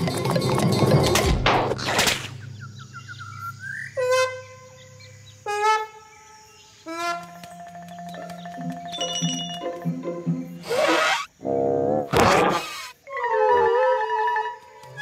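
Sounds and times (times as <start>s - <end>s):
busy cartoon music with percussion: 7.3s - 11.3s.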